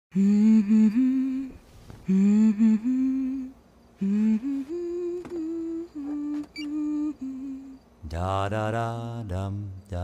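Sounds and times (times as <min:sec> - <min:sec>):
woman humming a lullaby tune: 0:00.1 - 0:07.9.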